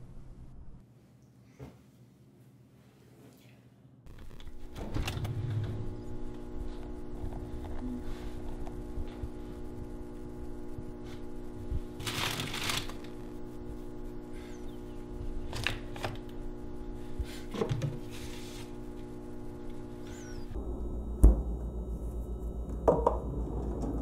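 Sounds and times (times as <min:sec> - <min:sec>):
steady low hum: 0:03.9 - 0:24.0
food packaging rustling: 0:12.0 - 0:13.2.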